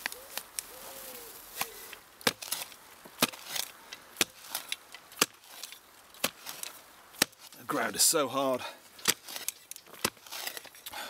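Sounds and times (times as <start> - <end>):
spade stabbing into dry soil: 1.5 - 8.0, 9.0 - 10.9.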